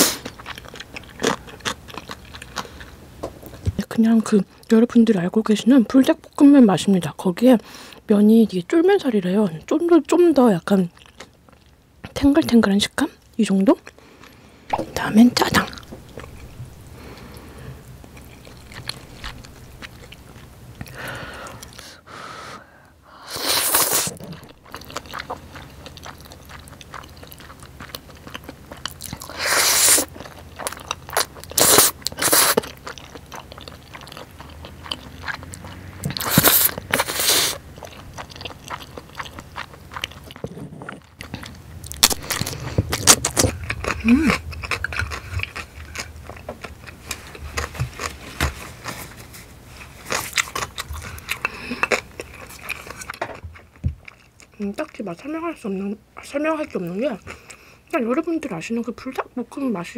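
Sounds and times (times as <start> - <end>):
chewing: 0.0 - 3.8, 10.8 - 12.2, 13.2 - 21.8, 23.6 - 55.5, 56.7 - 57.8
wet mouth clicks: 14.7 - 16.6
slurping noodles: 23.2 - 24.5, 29.3 - 30.1, 31.5 - 32.7, 36.1 - 37.6.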